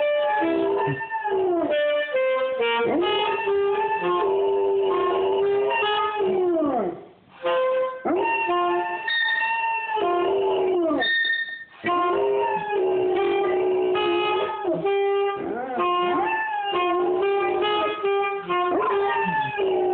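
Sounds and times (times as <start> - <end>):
saxophone playing: 0.0 - 19.9
dog howling: 0.1 - 1.8, 2.8 - 7.0, 8.0 - 11.1, 11.8 - 19.9.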